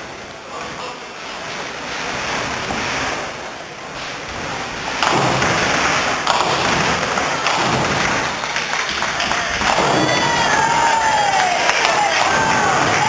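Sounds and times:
bowling balls rumbling: 0.3s - 13.0s
balls landing with thuds: 5.0s - 8.3s.

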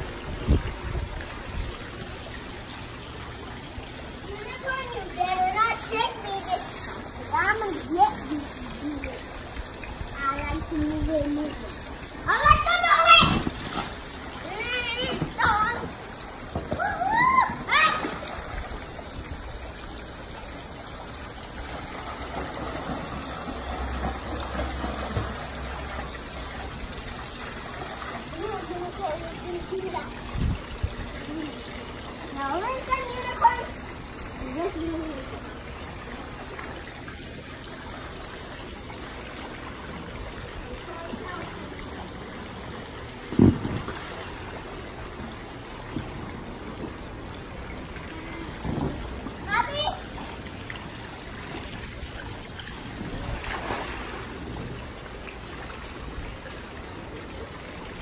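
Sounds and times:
water spilling into pool: 0.0s - 58.0s
float thumping onto water: 12.8s - 14.1s, 14.9s - 18.5s, 43.2s - 44.5s, 48.5s - 49.5s.

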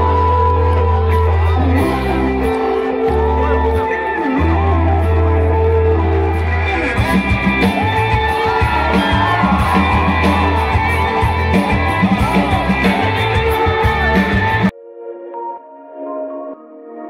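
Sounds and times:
rock band playing live: 0.0s - 14.7s
choppy drum beat: 7.0s - 14.7s.

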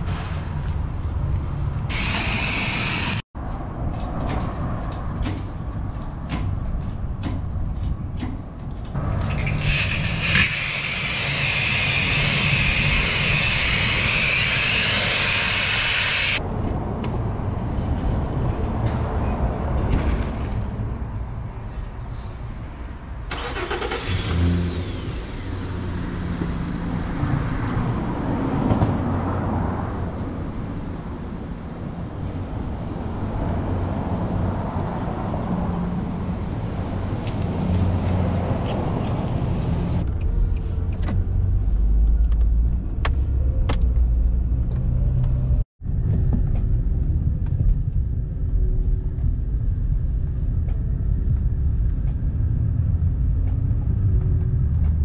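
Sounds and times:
pressure wand spraying water: 1.9s - 3.2s, 9.4s - 16.4s
steady low rumble: 45.5s - 55.0s.

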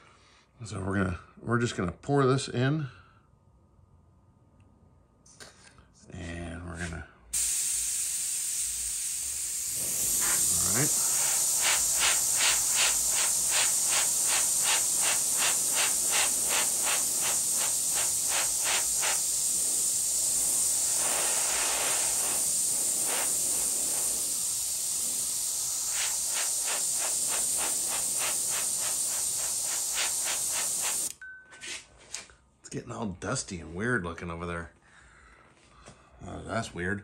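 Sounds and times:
airbrush hissing: 7.4s - 31.1s.

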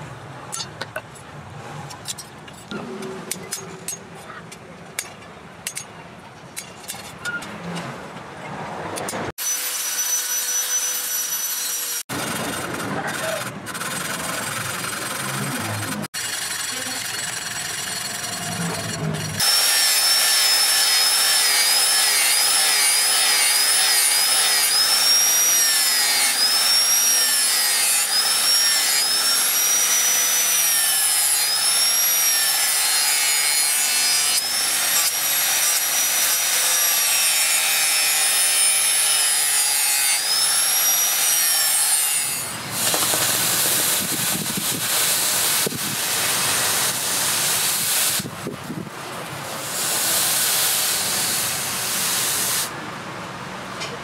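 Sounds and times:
angle grinder grinding steel: 9.4s - 48.3s
forge rushing hiss: 49.5s - 52.7s.

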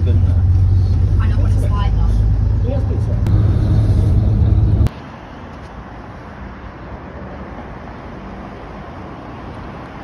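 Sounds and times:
bus engine rumble: 0.0s - 10.0s
road traffic hum: 0.0s - 10.0s.

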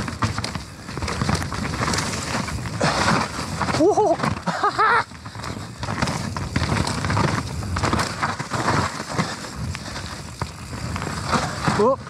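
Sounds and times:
clattering knocks from bike: 0.0s - 9.5s
bike tyre noise on trail: 0.0s - 12.0s.

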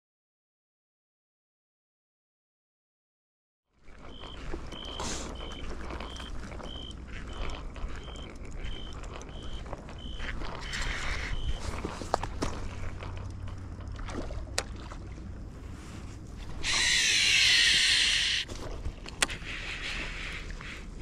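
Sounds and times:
short electronic beeps: 4.1s - 7.0s
low steady rumble: 4.1s - 21.0s.

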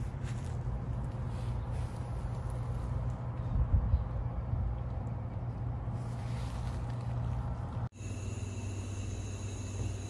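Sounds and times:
wind buffeting microphone: 3.1s - 5.4s.

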